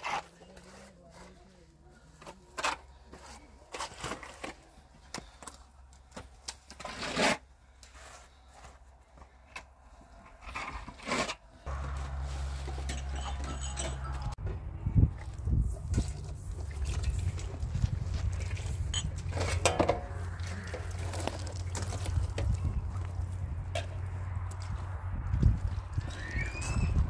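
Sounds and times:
trowel scraping plaster on wall: 6.7s - 7.5s, 10.4s - 11.4s.

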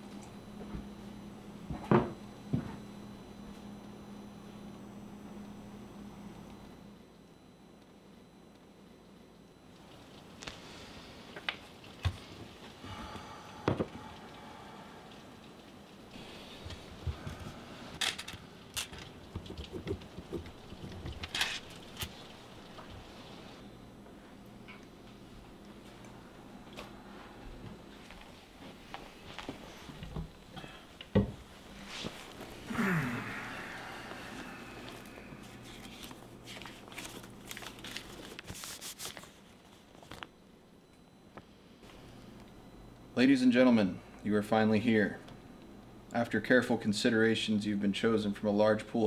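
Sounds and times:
paper crinkling: 34.8s - 40.3s.

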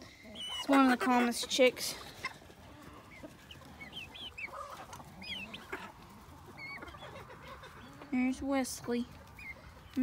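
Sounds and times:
chickens clucking: 0.0s - 10.0s
chicks peeping: 0.0s - 10.0s.

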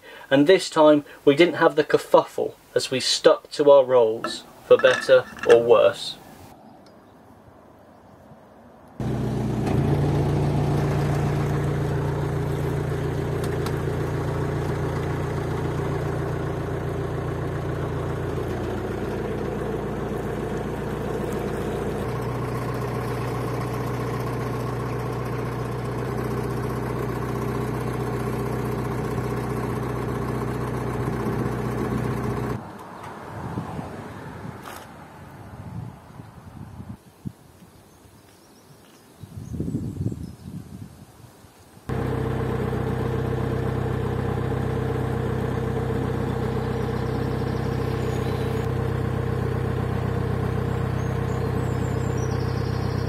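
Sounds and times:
boat engine running: 9.0s - 32.6s, 41.9s - 53.0s.

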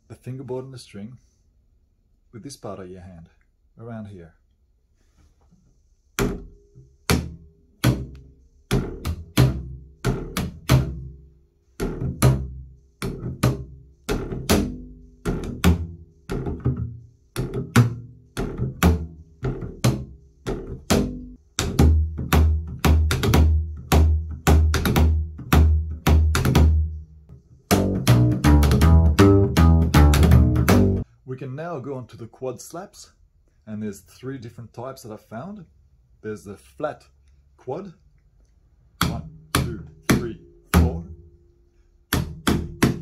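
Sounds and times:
double bass notes: 6.2s - 31.1s, 38.8s - 43.0s.

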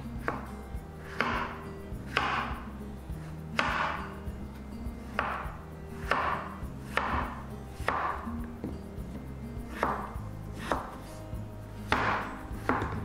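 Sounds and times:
soft background music: 0.0s - 13.0s
knife slicing on cutting board: 9.7s - 11.1s.

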